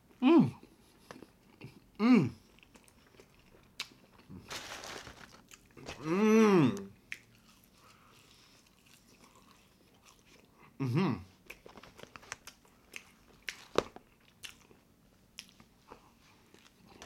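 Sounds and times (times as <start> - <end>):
man chewing with smacking: 0.1 - 4.4, 6.8 - 17.0
man moaning mmm: 0.2 - 0.6, 2.0 - 2.4, 5.9 - 6.9, 10.8 - 11.2.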